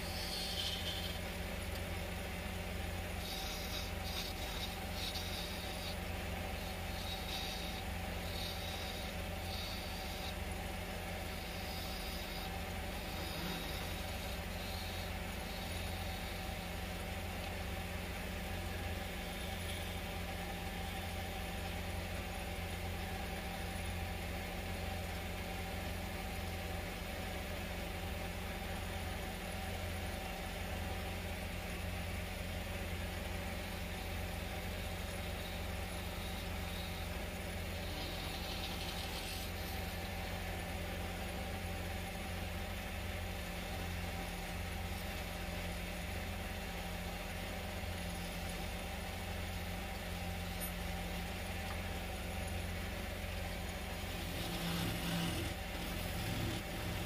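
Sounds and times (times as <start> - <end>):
turning tool cutting wood: 0.0 - 22.1, 33.0 - 42.4, 53.5 - 57.0
wood lathe motor hum: 0.0 - 57.0.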